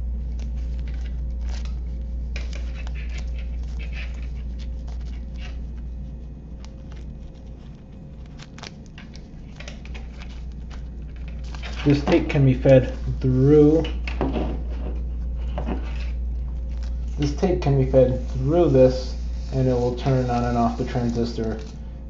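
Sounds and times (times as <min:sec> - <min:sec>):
steady low hum: 0:00.0 - 0:22.0
small clicks and rustles of handling: 0:06.6 - 0:12.3.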